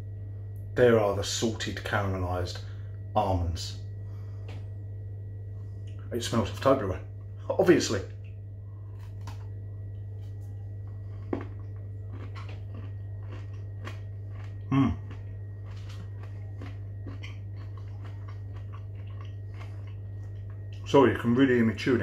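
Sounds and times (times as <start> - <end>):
steady low hum: 0.0 - 22.0
man chewing crunchy chocolate: 8.7 - 20.9
man humming mm: 14.6 - 15.2.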